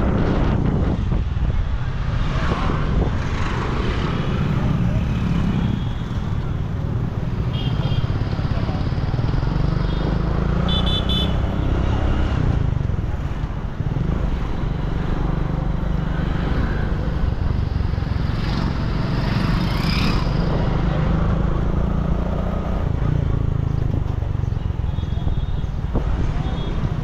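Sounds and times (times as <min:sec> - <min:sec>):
motorcycle engine and wind rumble: 0:00.0 - 0:27.0
passing two-wheelers: 0:00.0 - 0:27.0.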